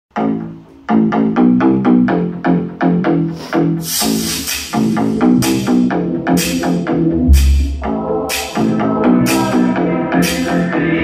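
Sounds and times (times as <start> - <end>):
music with drum beat and bass: 3.0 - 11.0.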